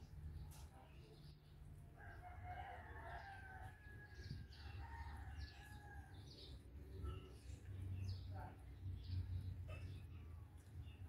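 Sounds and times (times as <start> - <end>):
rooster crowing: 2.0 - 6.2.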